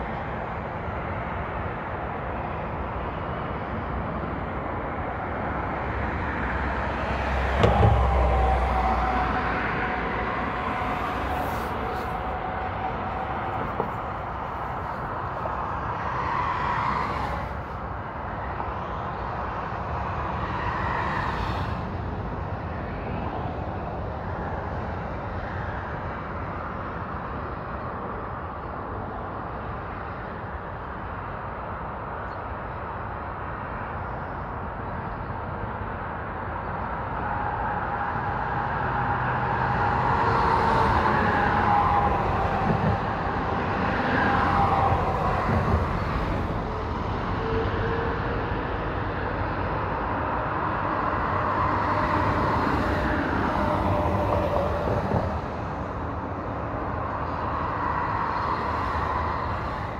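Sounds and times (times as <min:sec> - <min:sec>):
highway traffic rush: 0:00.0 - 0:59.9
vehicle passing with whine: 0:04.2 - 0:25.4.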